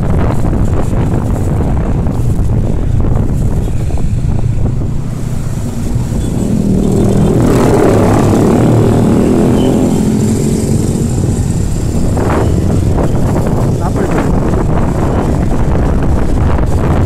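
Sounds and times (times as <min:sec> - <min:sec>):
engine hum: 0:00.0 - 0:17.0
scooter engines in traffic: 0:00.0 - 0:17.0
wind rumble on microphone: 0:00.0 - 0:17.0.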